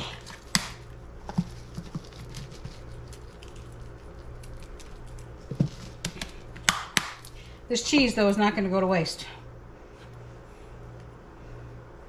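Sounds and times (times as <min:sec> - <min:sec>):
grated cheese pattering from shaker: 0:01.2 - 0:06.3.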